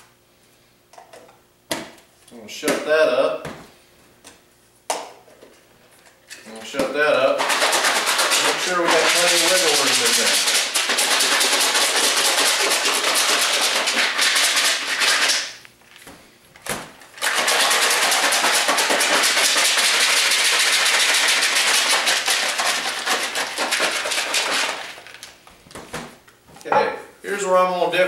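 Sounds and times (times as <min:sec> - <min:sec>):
pellets rattling in plastic container: 0:07.4 - 0:15.6, 0:17.2 - 0:25.4.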